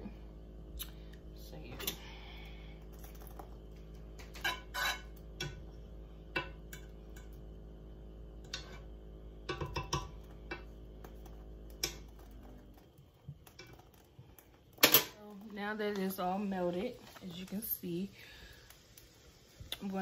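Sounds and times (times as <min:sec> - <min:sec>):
steady low hum: 0:00.0 - 0:20.0
utensil scraping skillet: 0:04.2 - 0:05.7, 0:08.4 - 0:08.9.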